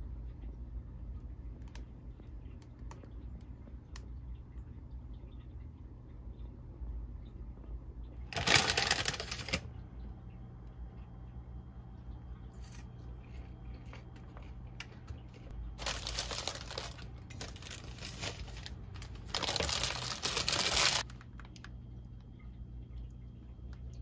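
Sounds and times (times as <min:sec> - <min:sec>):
paper wrapper crinkling: 0:08.3 - 0:09.8, 0:15.4 - 0:21.7.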